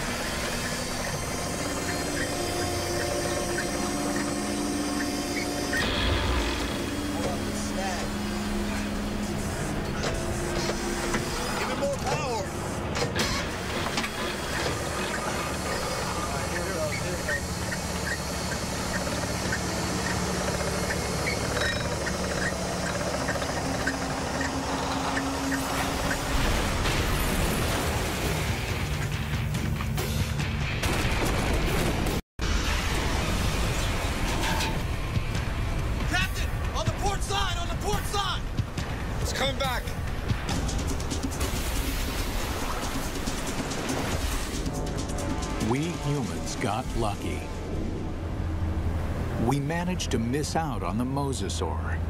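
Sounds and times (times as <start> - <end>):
winch motor humming: 0.0 - 26.8.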